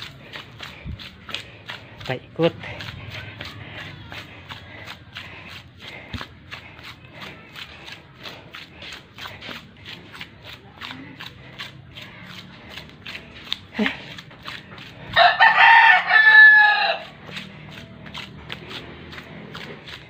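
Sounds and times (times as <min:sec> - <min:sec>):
bare feet treading wet clay: 0:00.0 - 0:20.0.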